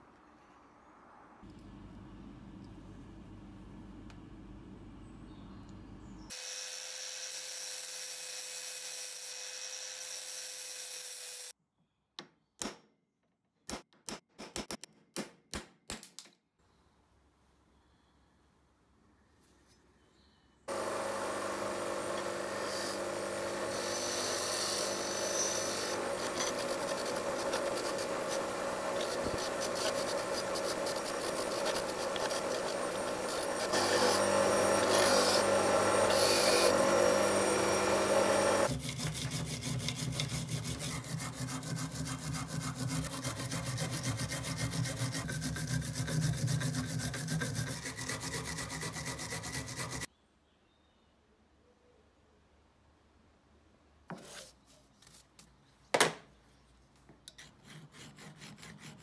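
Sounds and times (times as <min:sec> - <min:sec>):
bench grinder wire brush on metal: 0:20.7 - 0:50.1
hand file rasping on metal: 0:21.8 - 0:50.1, 0:57.3 - 0:59.0.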